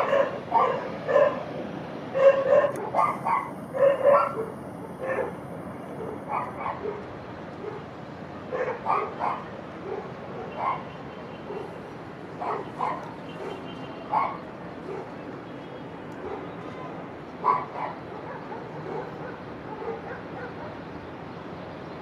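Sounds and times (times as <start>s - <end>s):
dog barking: 0.0s - 1.4s, 2.1s - 5.4s, 6.0s - 7.9s, 8.5s - 11.8s, 12.4s - 15.2s, 16.2s - 16.6s, 17.4s - 20.8s.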